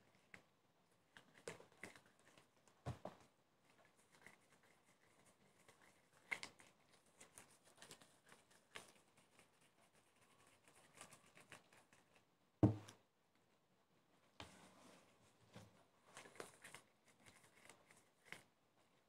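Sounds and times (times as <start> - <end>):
thump: 12.6 - 12.9.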